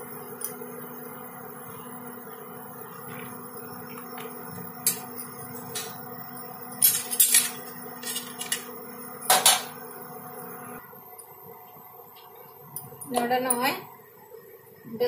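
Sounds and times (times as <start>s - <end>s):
induction cooktop hum: 0.0s - 15.0s
hot oil crackling and popping: 2.3s - 9.9s.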